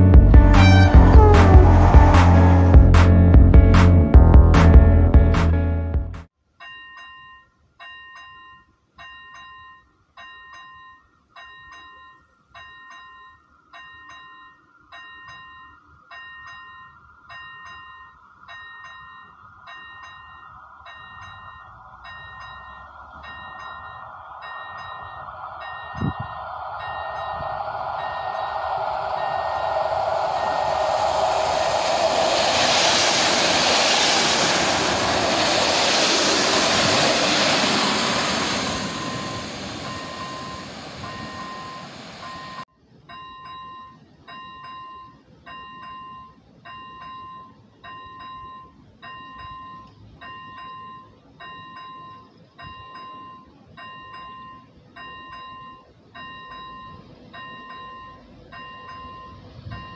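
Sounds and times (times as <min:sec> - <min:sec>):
passenger train passing: 0:00.0 - 0:04.6, 0:15.0 - 0:42.6, 0:44.3 - 0:59.9
level crossing warning bell: 0:06.5 - 0:32.5, 0:37.6 - 0:59.9.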